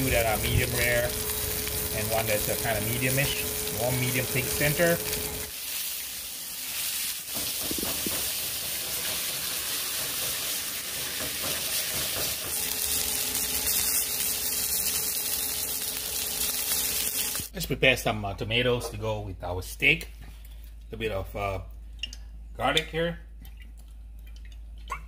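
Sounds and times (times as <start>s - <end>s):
meat sizzling in a skillet: 0.0s - 17.5s.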